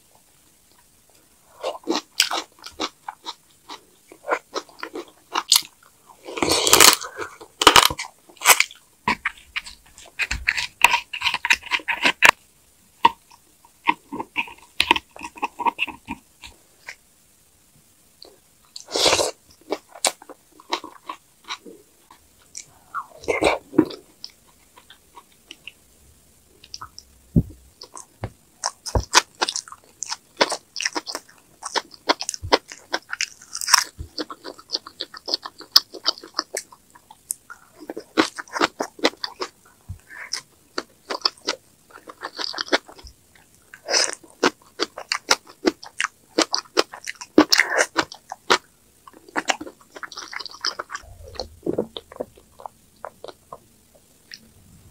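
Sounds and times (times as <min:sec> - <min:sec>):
crunchy bites: 0:01.6 - 0:12.4, 0:26.6 - 0:43.1
wet chewing: 0:13.0 - 0:17.0, 0:26.6 - 0:54.4.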